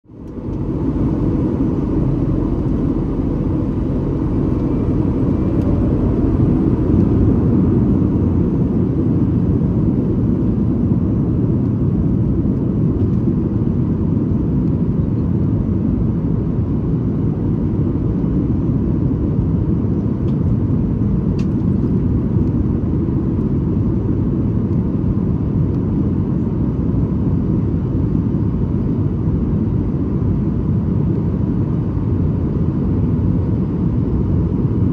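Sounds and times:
airplane cabin rumble: 0.0 - 34.9.

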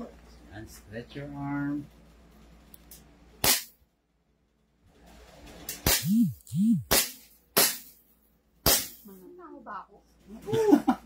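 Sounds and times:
airsoft pistol shots: 3.4 - 3.7, 5.8 - 8.0, 8.6 - 9.0.

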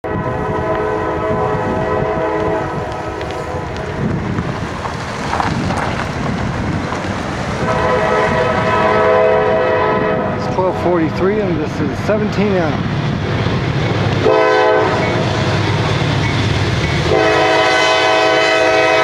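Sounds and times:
locomotive air horn blasts: 0.0 - 3.6, 7.6 - 10.4, 14.2 - 15.2, 17.1 - 19.0
low train rumble: 0.0 - 19.0.

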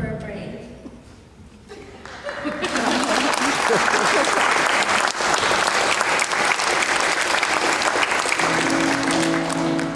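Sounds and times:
audience applauding: 2.0 - 9.9
held musical notes: 8.0 - 9.9.

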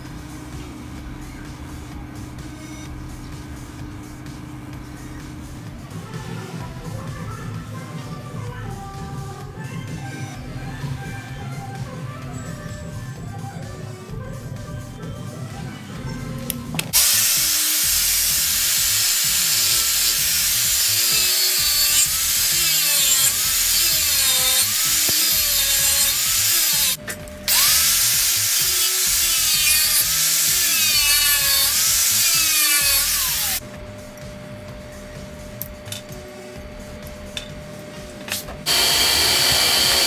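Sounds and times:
angle grinder cutting steel: 16.9 - 33.6, 38.3 - 40.0.

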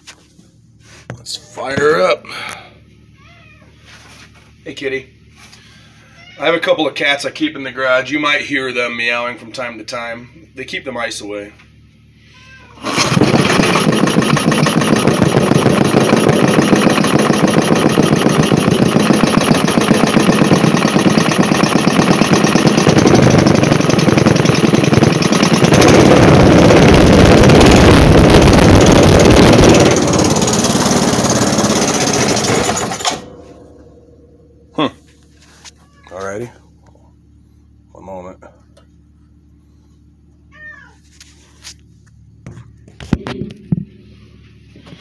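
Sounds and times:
single-cylinder engine putt-putting: 12.8 - 34.8.

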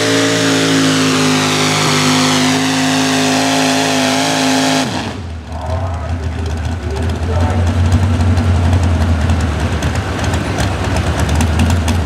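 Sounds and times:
engine running at high pitch: 0.0 - 9.2
low engine rumble: 4.9 - 12.0.

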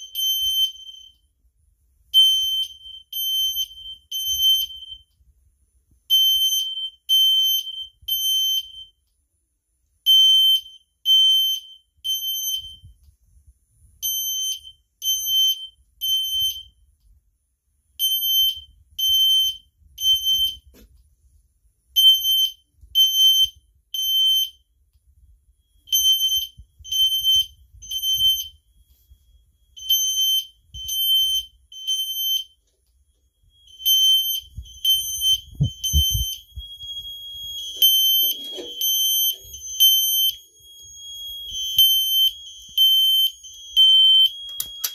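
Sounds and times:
steady alarm tone: 25.4 - 44.9
fire alarm horns beeping: 25.8 - 44.9.

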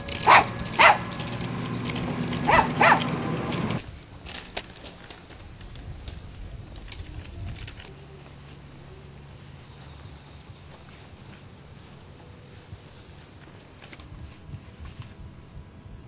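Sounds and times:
low hum: 7.0 - 16.0.

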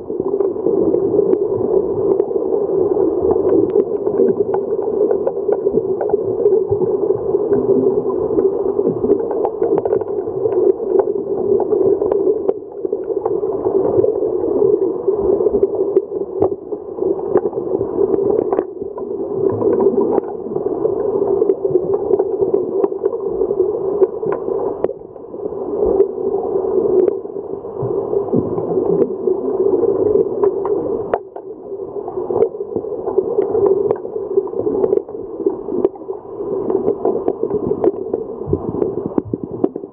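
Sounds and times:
muffled underwater rumble: 0.0 - 39.9
sharp underwater clicks and knocks: 9.1 - 11.1, 30.4 - 31.5.

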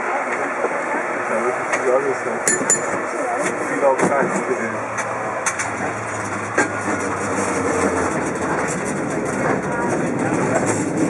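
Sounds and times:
cable car running on track: 0.0 - 11.0.

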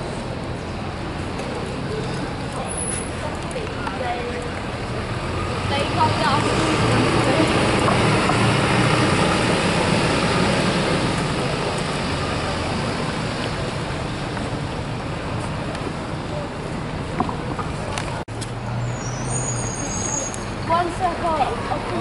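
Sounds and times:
bus engine hum: 0.0 - 22.0
traffic noise: 0.0 - 22.0.

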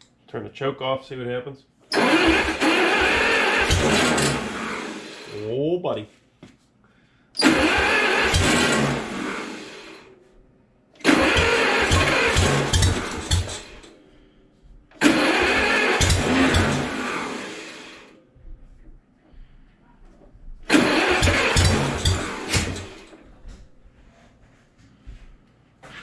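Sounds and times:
starter cranking engine: 1.9 - 5.4, 7.4 - 10.0, 11.0 - 14.0, 14.9 - 18.1, 20.7 - 23.2.

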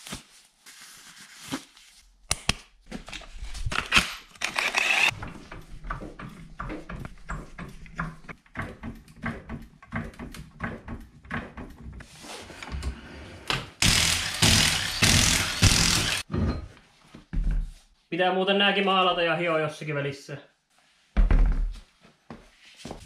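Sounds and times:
impact wrench hammering: 13.8 - 16.3.

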